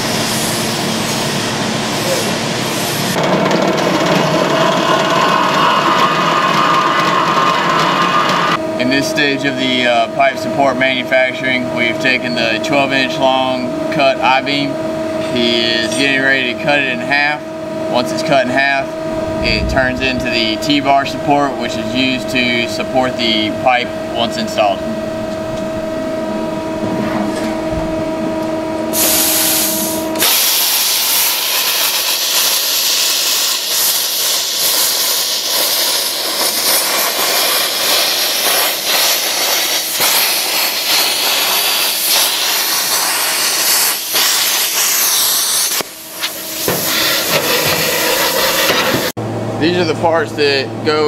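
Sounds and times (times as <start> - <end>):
plasma cutter crackling hiss: 0.0 - 3.2, 28.9 - 49.1
shop hum: 0.0 - 51.0
air rushing: 18.8 - 22.0.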